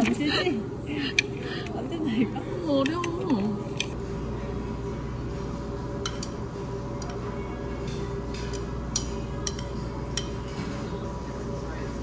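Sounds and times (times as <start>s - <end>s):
restaurant dining room hum: 0.0s - 12.0s
utensils clinking on dishes: 6.0s - 11.9s.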